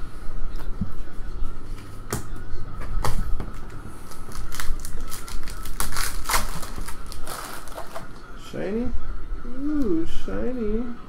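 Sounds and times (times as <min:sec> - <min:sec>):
foil wrapper crinkling and tearing: 0:04.0 - 0:08.1.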